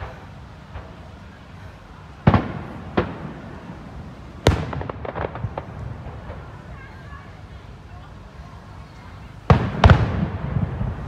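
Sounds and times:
firework shells bursting: 0:02.2 - 0:06.7
crackling pops: 0:04.4 - 0:06.5.

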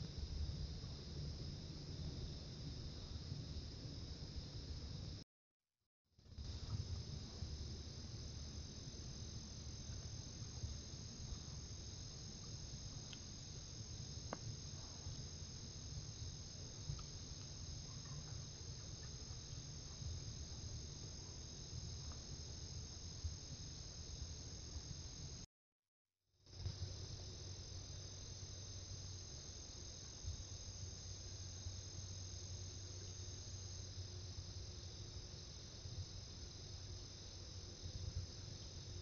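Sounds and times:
low steady rumble: 0:00.0 - 0:05.2, 0:06.3 - 0:25.4
faint ticks: 0:06.4 - 0:07.5, 0:09.8 - 0:22.6
crickets chirring: 0:06.4 - 0:25.4, 0:26.5 - 0:39.0.

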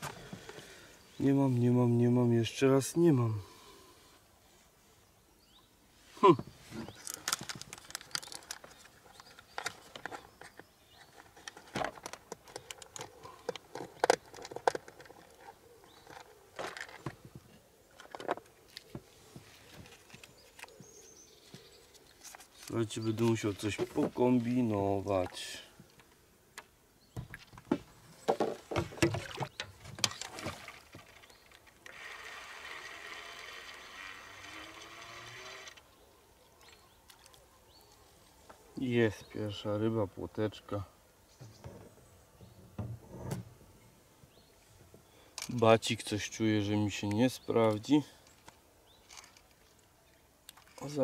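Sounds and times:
fishing gear clicking and rattling: 0:06.8 - 0:18.9, 0:27.2 - 0:35.9, 0:45.3 - 0:49.9, 0:50.5 - 0:51.0.

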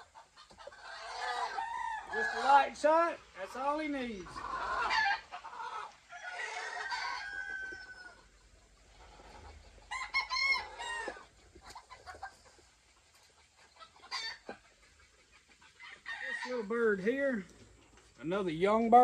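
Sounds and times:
roosters crowing: 0:00.7 - 0:03.0, 0:04.2 - 0:08.4, 0:09.2 - 0:11.3, 0:15.7 - 0:17.1.

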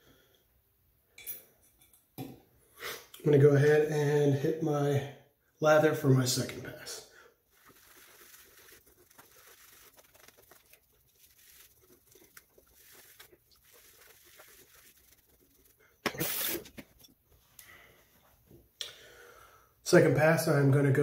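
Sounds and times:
shaving brush swishing on stubble: 0:07.5 - 0:16.8.

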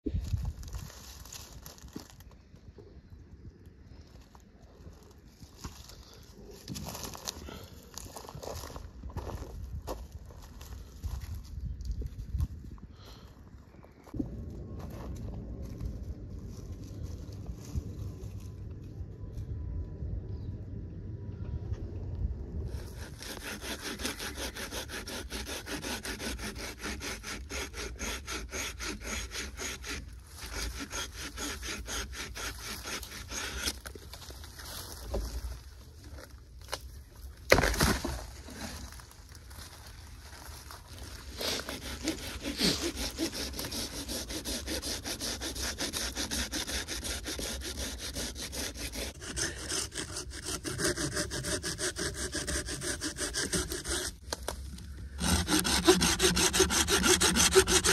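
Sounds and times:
rasping saw strokes: 0:22.7 - 0:34.0, 0:41.2 - 0:54.3, 0:55.2 - 0:57.9.

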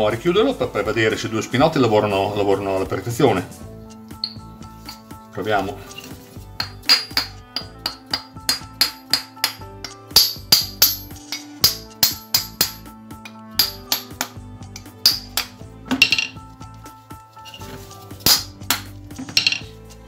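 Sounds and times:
background music: 0:00.0 - 0:20.0
hammer tapping on metal: 0:06.6 - 0:12.9, 0:13.6 - 0:16.3.

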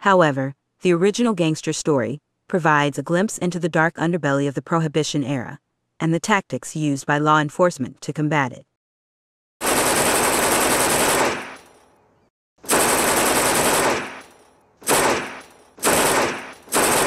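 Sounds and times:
automatic machine-gun fire: 0:09.6 - 0:11.8, 0:12.6 - 0:17.0.

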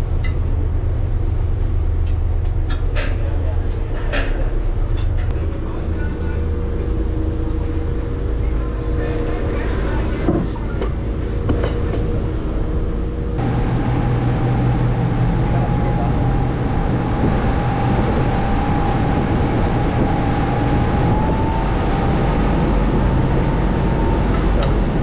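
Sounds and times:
boat engine running: 0:00.0 - 0:25.0
thin whine: 0:11.2 - 0:25.0
wind and water rushing: 0:12.1 - 0:25.0.

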